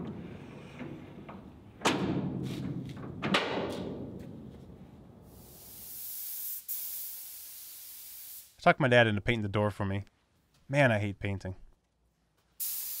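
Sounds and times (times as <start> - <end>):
paint spray gun hissing: 5.3 - 8.6, 12.6 - 13.0.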